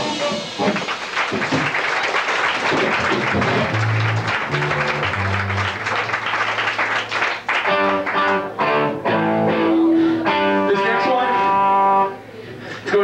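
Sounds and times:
hardcore band playing live: 0:02.8 - 0:06.6
electric guitar ringing notes: 0:03.2 - 0:06.4, 0:07.7 - 0:12.4.

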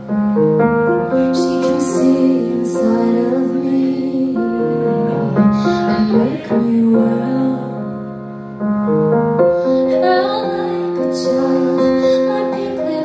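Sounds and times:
keyboard chords: 0:00.0 - 0:13.0
woman singing a ballad: 0:01.2 - 0:08.2, 0:09.6 - 0:13.0.

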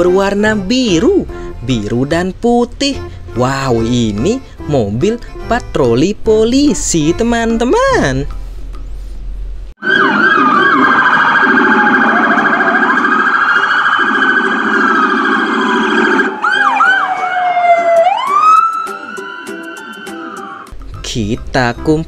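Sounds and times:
police sirens wailing and yelping: 0:09.8 - 0:20.7.

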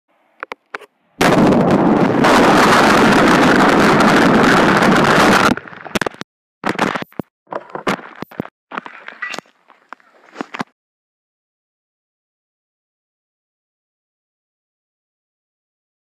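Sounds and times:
distorted boiling water rushing: 0:01.5 - 0:06.1
device knocking and clattering: 0:06.0 - 0:08.5.

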